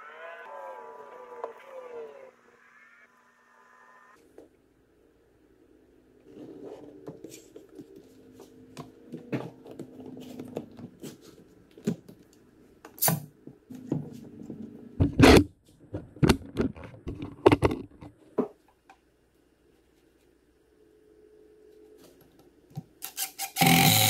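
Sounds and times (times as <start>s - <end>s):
faint hum: 0.0s - 12.8s, 16.8s - 23.0s.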